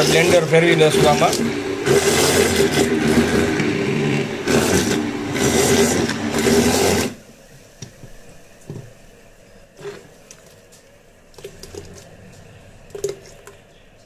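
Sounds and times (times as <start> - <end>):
immersion blender motor hum: 0.0 - 7.2.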